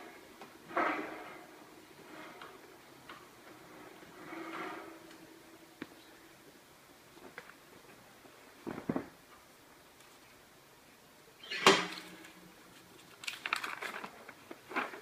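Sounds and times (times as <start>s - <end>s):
paper sheets rustling: 11.9s - 15.0s.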